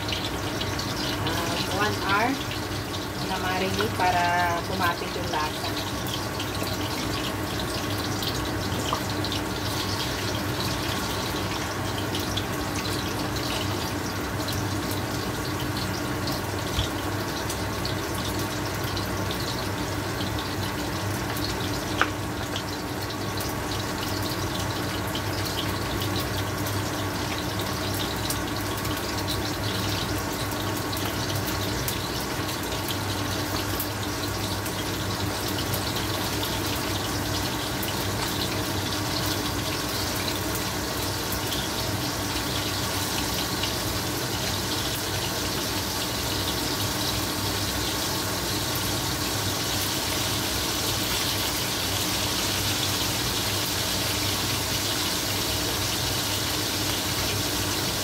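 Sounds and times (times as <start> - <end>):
meat sizzling in hot oil: 0.0 - 58.0.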